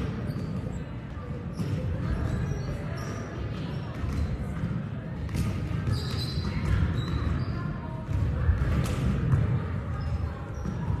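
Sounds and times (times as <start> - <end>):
gym hall din: 0.0 - 11.0
volleyballs struck and bouncing: 0.0 - 11.0.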